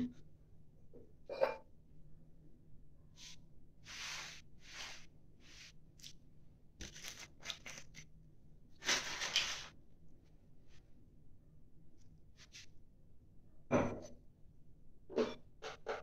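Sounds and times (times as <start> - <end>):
handling scrapes and rustles: 3.9 - 6.2, 8.8 - 9.8.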